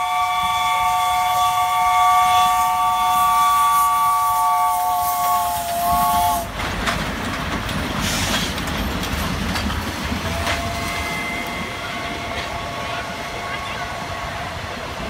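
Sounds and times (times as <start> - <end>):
steam locomotive whistle: 0.0 - 6.5, 10.2 - 15.0
train carriages rumbling: 0.0 - 15.0
wheels clacking over rail joints: 5.6 - 12.8.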